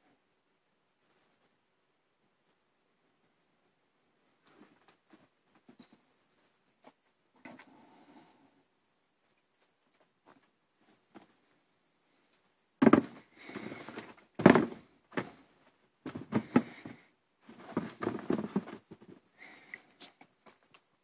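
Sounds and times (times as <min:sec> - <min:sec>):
rubbing and rustling: 0:10.0 - 0:20.2
shuffling handling noise: 0:10.1 - 0:20.2
sneakers knocking on cardboard box: 0:12.8 - 0:13.2, 0:14.4 - 0:15.3, 0:16.1 - 0:16.9, 0:17.6 - 0:18.8.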